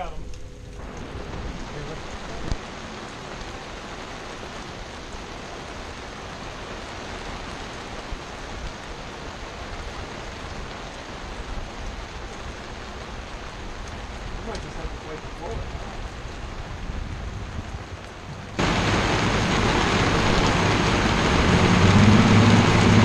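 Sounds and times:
heavy rain: 0:00.0 - 0:23.0.

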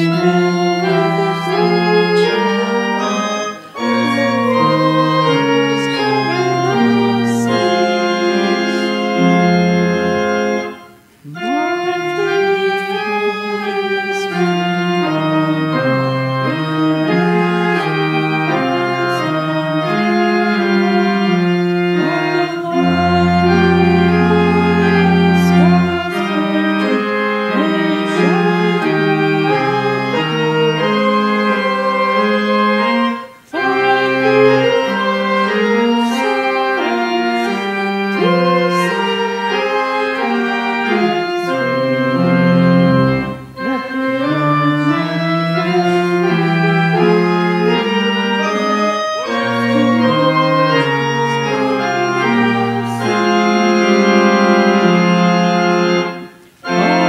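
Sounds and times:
pipe organ playing chords: 0:00.0 - 0:57.0.

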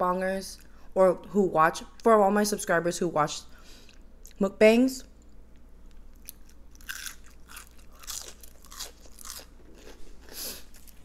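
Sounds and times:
person chewing crunchy food: 0:05.9 - 0:11.0.

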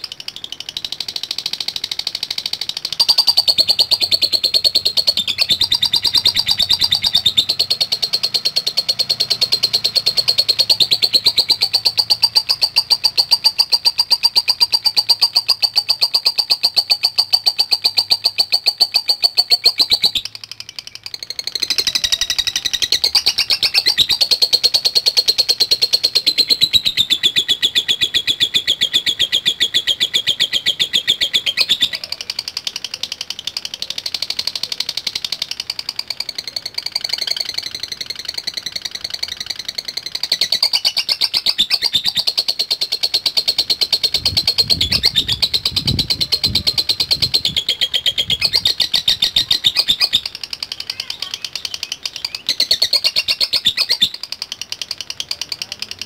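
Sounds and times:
lovebird ticking chatter: 0:00.0 - 0:56.0.

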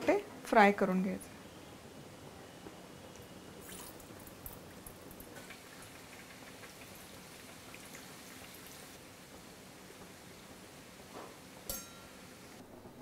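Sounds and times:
oil sizzling and crackling: 0:03.1 - 0:12.6.

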